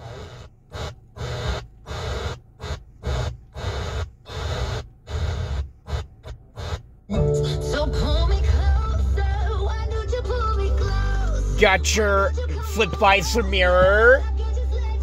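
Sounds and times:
music from radio: 0:07.1 - 0:15.0.

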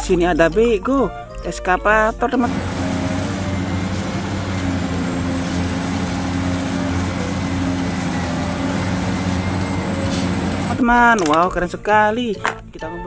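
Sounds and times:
excavator diesel engine running: 0:02.5 - 0:11.1.

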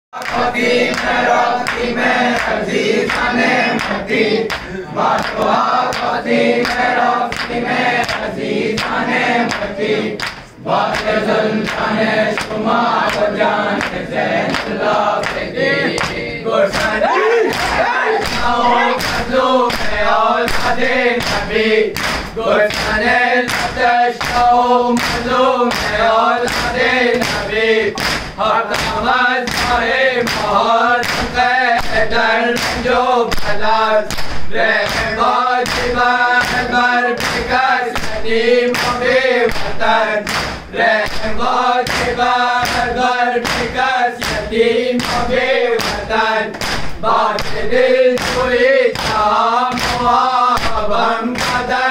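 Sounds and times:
men chanting in chorus: 0:00.2 - 0:51.9
hands beating chests: 0:16.0 - 0:24.4.

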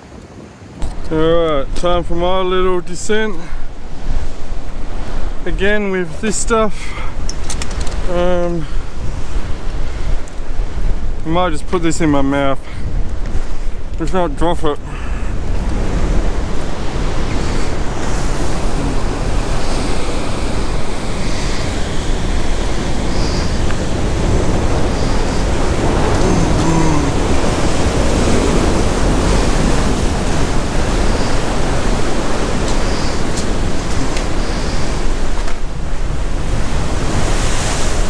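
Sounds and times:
wind rumbling on microphone: 0:00.0 - 0:38.0
surf washing against rocks: 0:00.8 - 0:38.0.

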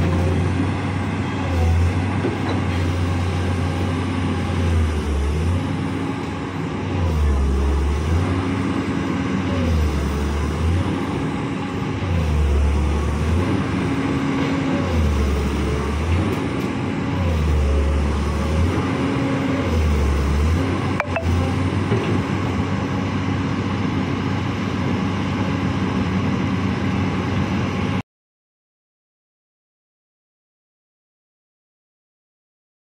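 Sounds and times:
excavator diesel engine running: 0:00.0 - 0:28.0.

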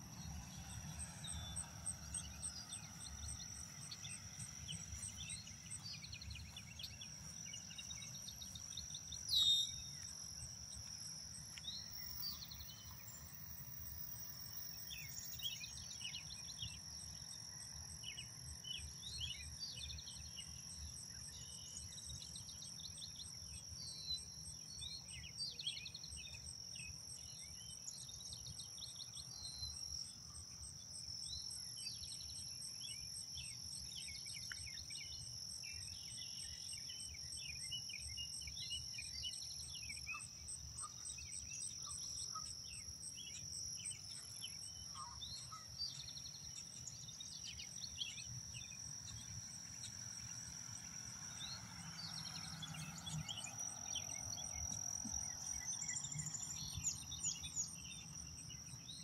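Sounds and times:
high-pitched insect drone: 0:00.0 - 0:59.0
rapid insect pulse: 0:00.0 - 0:59.0
songbirds chirping and singing: 0:51.3 - 0:59.0.

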